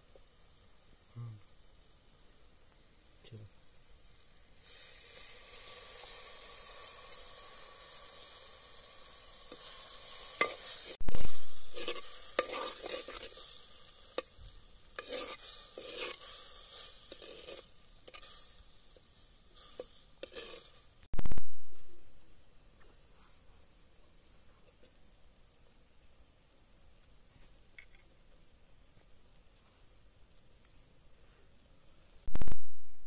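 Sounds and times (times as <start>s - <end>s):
sizzling hiss in pot: 0.0s - 33.0s
ladle scraping pot: 10.4s - 13.4s, 15.0s - 16.3s, 17.0s - 18.3s, 19.8s - 20.8s.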